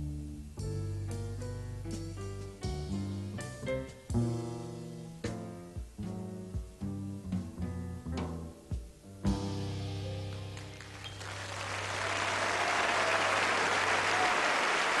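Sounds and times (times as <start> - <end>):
jazz trio playing: 0.0 - 11.4
audience applause: 10.3 - 15.0.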